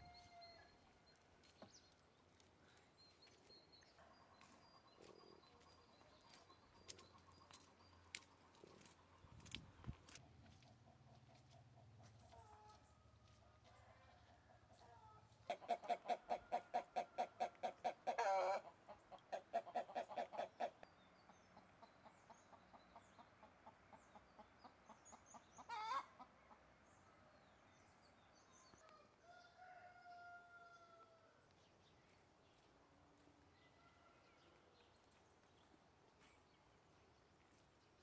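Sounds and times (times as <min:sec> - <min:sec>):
hen clucking: 0:15.4 - 0:20.8, 0:21.6 - 0:26.3.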